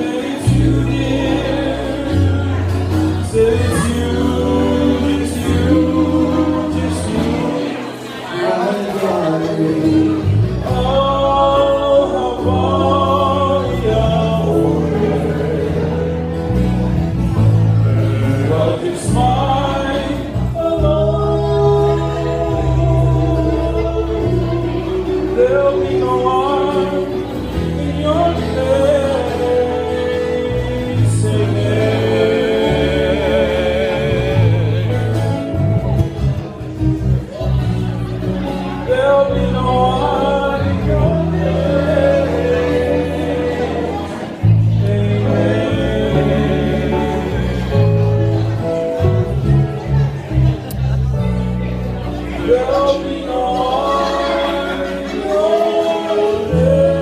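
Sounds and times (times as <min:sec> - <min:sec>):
acoustic and electric guitars: 0:00.0 - 0:57.0
bass line: 0:00.0 - 0:57.0
male voices singing in harmony: 0:00.0 - 0:57.0.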